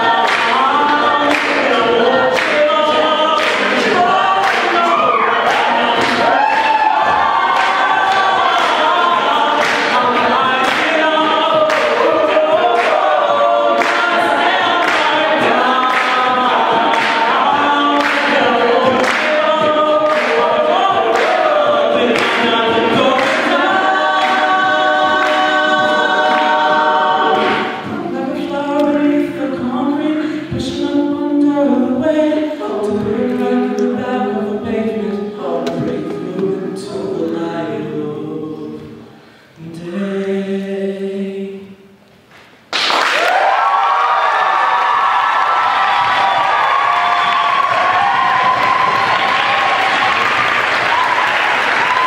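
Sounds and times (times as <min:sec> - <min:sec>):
vocal percussion beat: 0:00.0 - 0:40.2
backing vocal harmonies: 0:00.0 - 0:52.0.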